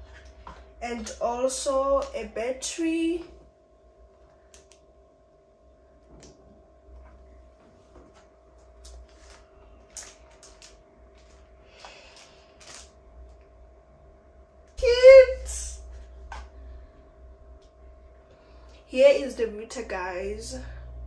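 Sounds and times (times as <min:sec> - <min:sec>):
faint steady hum: 0:00.0 - 0:21.0
packaging clicks and rustles: 0:08.8 - 0:13.0.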